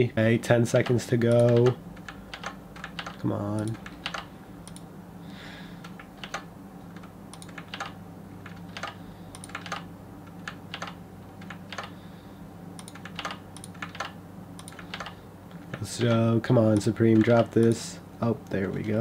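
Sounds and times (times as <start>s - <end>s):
steady low hum: 0.0s - 19.0s
keyboard and mouse clicking: 0.8s - 4.9s, 5.8s - 12.0s, 12.8s - 15.2s.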